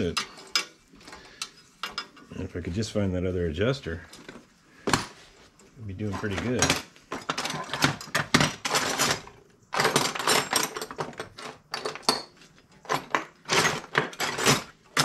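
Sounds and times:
metal tools clinking in a tray: 0.0 - 2.4, 6.1 - 15.0.

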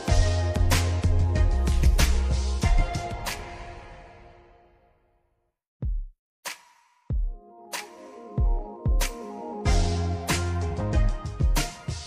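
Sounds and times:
electronic music: 0.0 - 4.5, 7.3 - 12.0.

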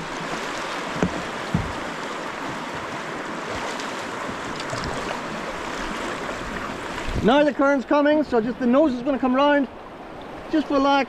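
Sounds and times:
river current rushing: 0.0 - 11.0
short knocks: 1.0 - 1.8.

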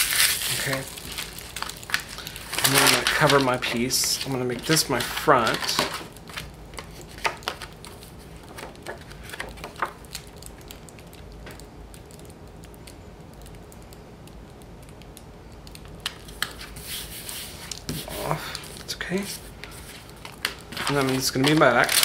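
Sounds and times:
paper rustling: 0.0 - 10.0, 16.0 - 22.0.

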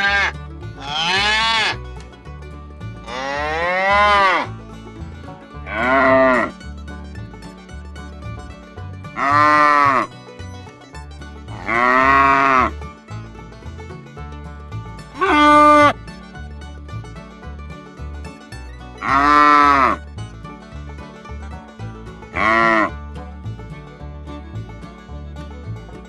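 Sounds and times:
calves bawling: 0.0 - 1.9, 3.0 - 7.6, 8.6 - 13.4, 15.0 - 16.4, 18.6 - 20.4, 22.1 - 23.0.

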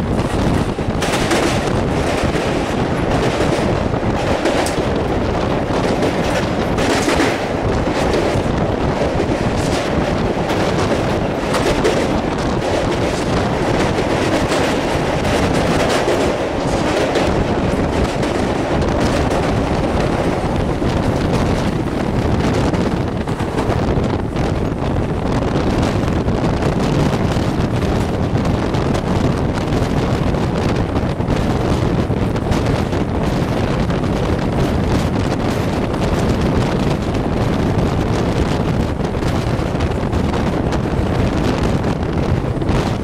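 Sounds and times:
train wheels rumbling on rails: 0.0 - 43.0
wind buffeting microphone: 0.0 - 43.0.

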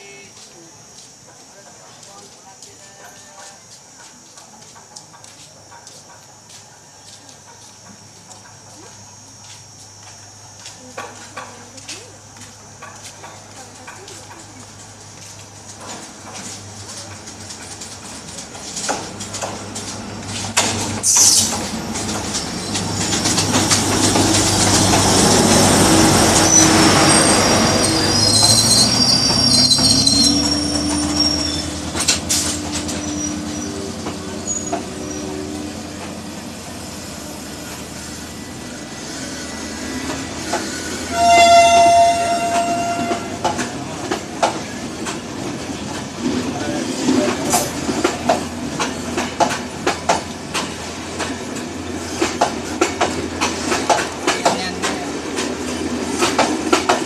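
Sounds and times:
wheel-on-rail noise: 0.0 - 57.0
high wheel squeals: 24.4 - 36.0, 37.0 - 43.4
train horn: 41.0 - 43.5.

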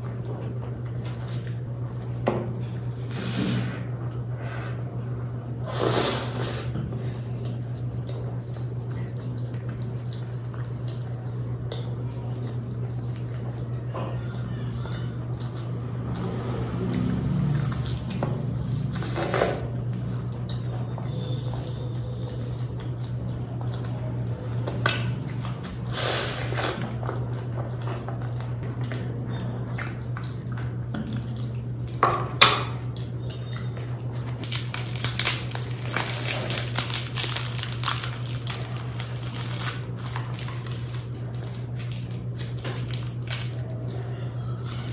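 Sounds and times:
chewing and wet mouth sounds: 0.0 - 3.1, 6.2 - 44.9
steady low hum: 0.0 - 44.9
pastry crackling as broken apart: 34.4 - 44.9.

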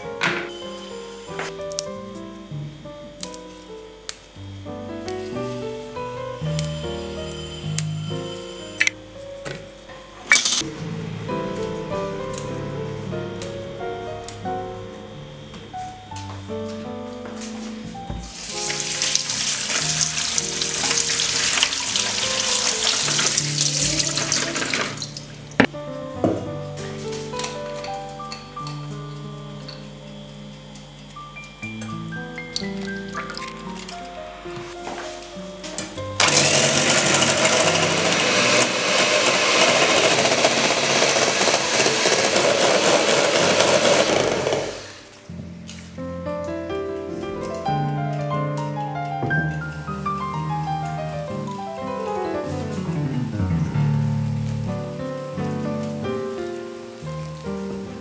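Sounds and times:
soft background music: 0.0 - 39.5, 44.6 - 58.0
electric mixer whisking cream: 18.3 - 25.0, 36.2 - 45.1.

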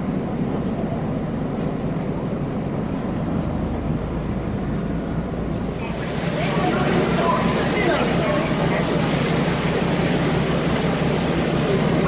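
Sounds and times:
ferry engines rumbling: 0.0 - 12.0
wind: 0.0 - 12.0
water noise: 2.5 - 12.0.

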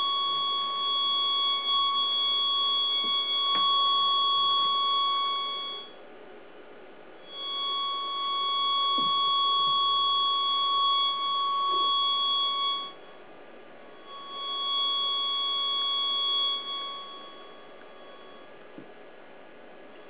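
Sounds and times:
steady electronic tone: 0.0 - 6.0, 7.2 - 20.0.

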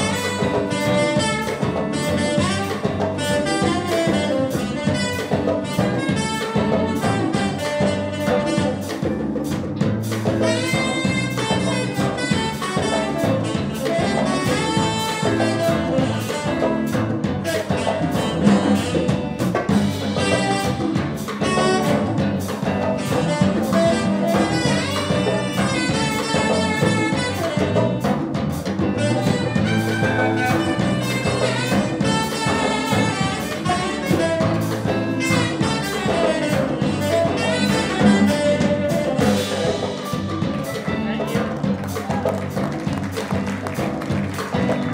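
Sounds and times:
drum kit: 0.0 - 44.9
electric bass: 0.0 - 44.9
saxophone: 0.0 - 44.9
harmonica: 10.4 - 28.0, 28.8 - 41.5.

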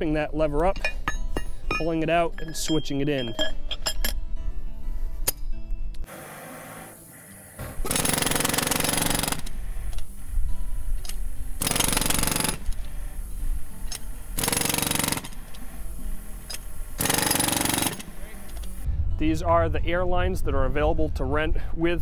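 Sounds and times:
jackhammer hammering asphalt: 7.8 - 9.5, 11.6 - 12.7, 14.4 - 15.4, 17.0 - 18.1.

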